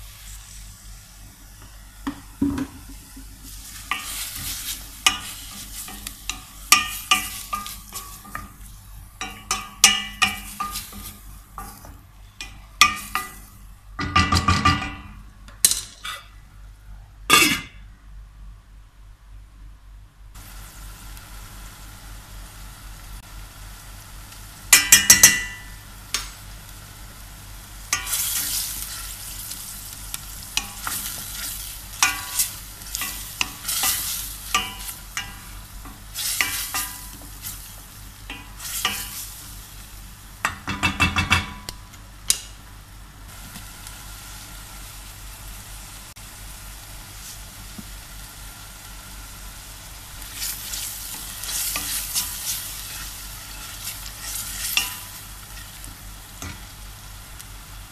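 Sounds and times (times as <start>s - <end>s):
onion and garlic sizzling in oil: 0.0s - 15.3s, 20.4s - 57.9s
spoon scraping and knocking pan: 2.0s - 16.2s, 27.9s - 29.2s, 30.4s - 37.6s, 38.3s - 39.3s, 40.4s - 41.7s, 50.4s - 55.7s.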